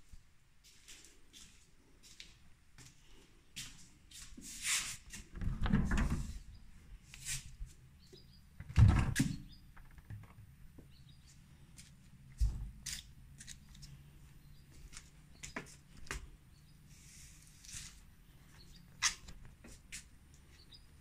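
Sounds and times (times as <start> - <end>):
door opening and closing: 5.3 - 6.5, 8.6 - 10.4
rustling and handling noise: 11.3 - 20.6.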